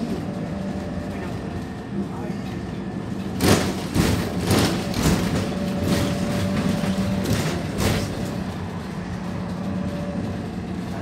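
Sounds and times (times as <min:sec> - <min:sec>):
bus diesel engine drone: 0:00.0 - 0:11.0.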